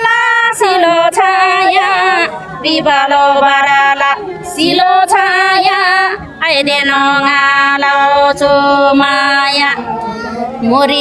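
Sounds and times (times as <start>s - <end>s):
singer breathing in: 10.0s - 10.6s.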